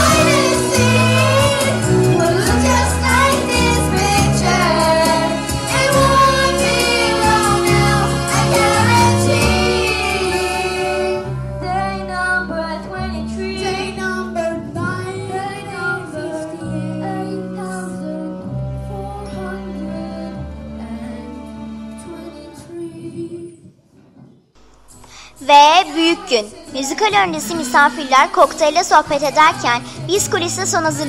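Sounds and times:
girls singing together: 0:00.0 - 0:17.4
instrumental accompaniment: 0:00.0 - 0:23.1, 0:24.6 - 0:31.0.

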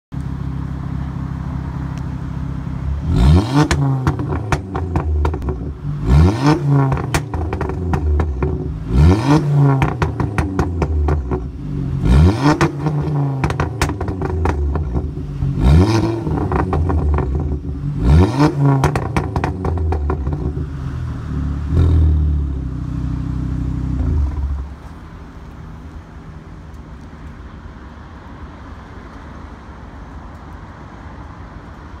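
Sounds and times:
car engine revving: 0:00.9 - 0:25.0
exhaust pops and crackles: 0:03.1 - 0:20.9, 0:23.9 - 0:25.7.

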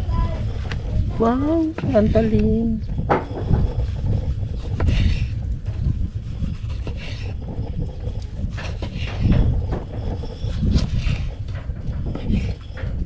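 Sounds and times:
wind rumble on microphone: 0:00.0 - 0:13.0.

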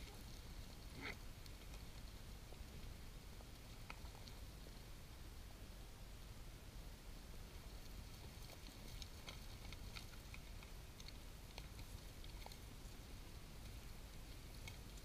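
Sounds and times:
light clicks and ticks: 0:07.8 - 0:15.0.

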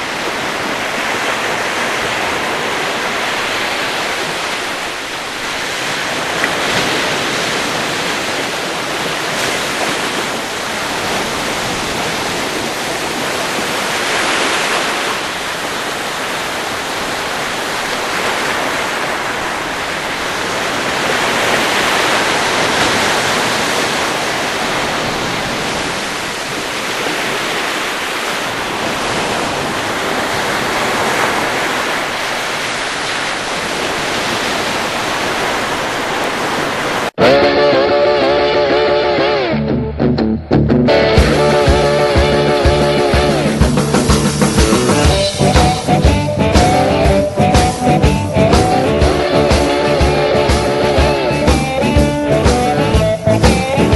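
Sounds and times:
steady rushing noise: 0:40.4 - 0:53.9.

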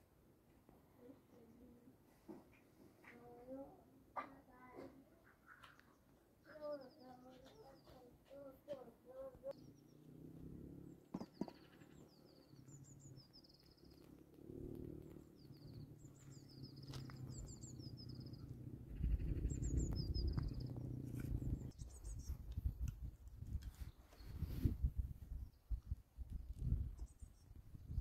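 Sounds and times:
small birds chirping: 0:01.0 - 0:28.0
low rumble: 0:14.7 - 0:21.8.

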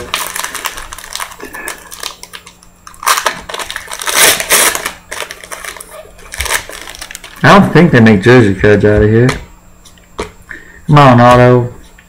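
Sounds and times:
foil wrapper tearing and crinkling: 0:00.0 - 0:07.5.

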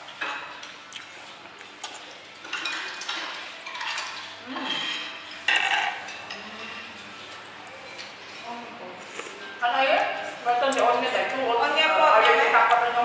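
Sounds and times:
metal utensils clinking on dishes: 0:02.4 - 0:08.2.

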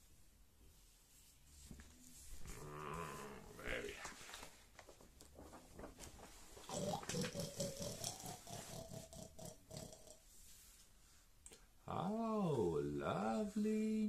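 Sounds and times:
pig-like grunting: 0:06.7 - 0:10.2.

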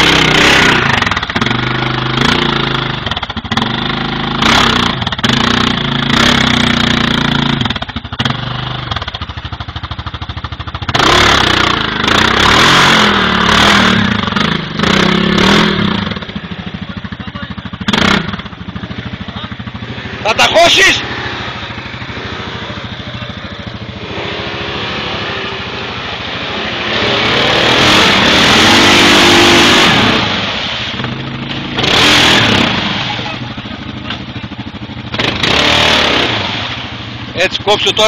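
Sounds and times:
quad bike engine revving: 0:00.0 - 0:38.0.

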